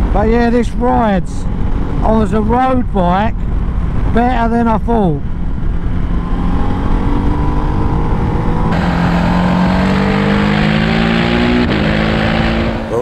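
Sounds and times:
wind noise: 0:00.0 - 0:12.8
motorcycle engine accelerating: 0:05.3 - 0:13.0.

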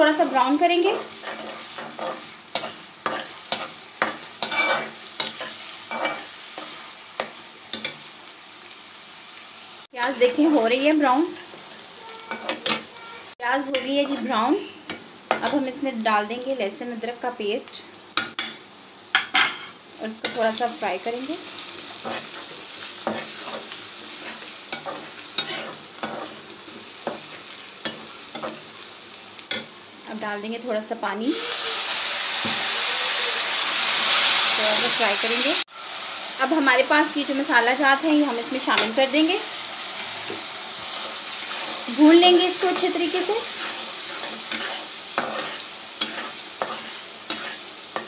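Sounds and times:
onions sizzling in oil: 0:00.0 - 0:48.0
spoon scraping a pan: 0:00.8 - 0:08.1, 0:10.0 - 0:15.6, 0:19.2 - 0:20.8, 0:21.5 - 0:29.8, 0:39.8 - 0:48.0.

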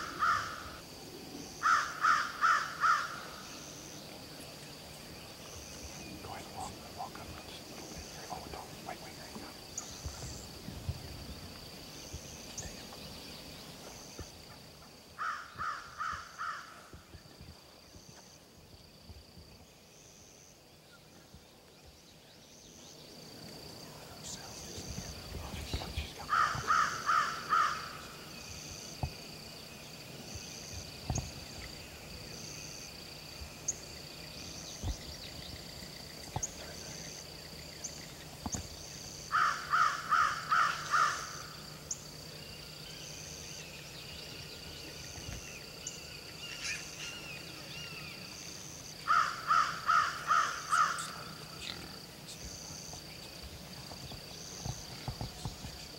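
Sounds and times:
crow cawing: 0:00.0 - 0:00.8, 0:01.6 - 0:03.2, 0:15.2 - 0:16.8, 0:26.3 - 0:28.0, 0:39.3 - 0:41.5, 0:49.1 - 0:51.2
faint chirps: 0:03.0 - 0:14.9, 0:16.8 - 0:39.3.

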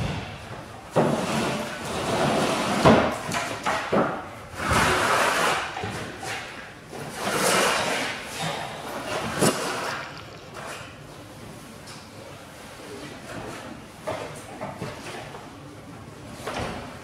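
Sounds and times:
wood scraping on concrete floor: 0:01.0 - 0:03.0, 0:04.6 - 0:10.9.

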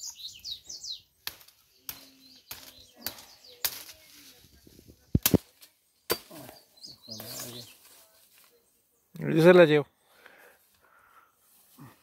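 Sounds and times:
leafy branches rustling: 0:01.1 - 0:09.7.

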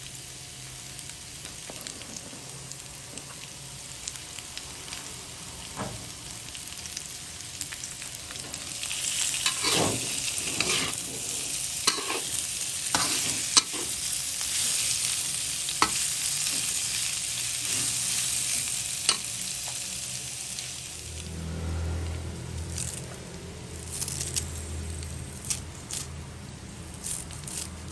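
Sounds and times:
food sizzling in a wok: 0:00.0 - 0:27.9
metal spatula stirring: 0:09.3 - 0:14.0.

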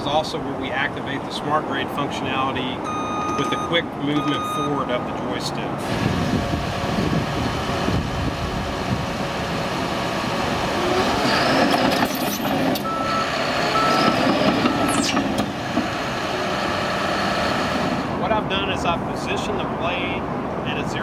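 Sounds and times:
backup alarm beeps: 0:02.8 - 0:04.9, 0:12.8 - 0:15.0
diesel engine running: 0:05.8 - 0:18.6.

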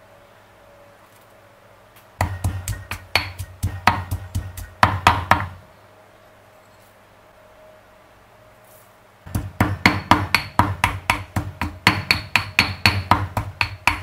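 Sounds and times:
stone pestle knocking in mortar: 0:02.2 - 0:05.6, 0:09.3 - 0:14.0.

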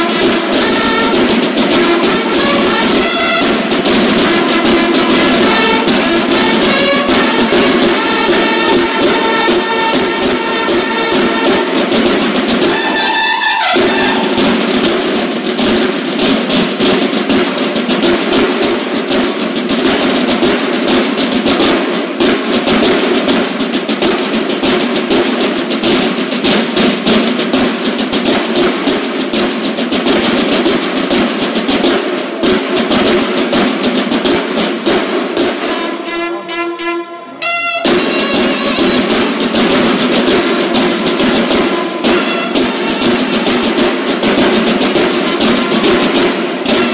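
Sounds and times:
bugles holding a chord: 0:00.0 - 0:11.8
snare and bass drums cadence: 0:00.0 - 0:46.9.

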